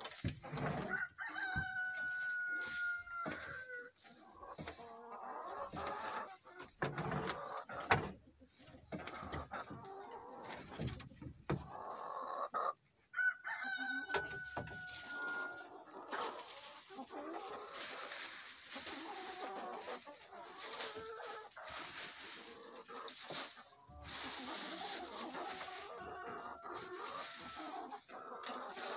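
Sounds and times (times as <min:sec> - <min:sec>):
chickens clucking: 0:00.0 - 0:28.9
long chicken call: 0:00.8 - 0:03.9, 0:13.2 - 0:16.2.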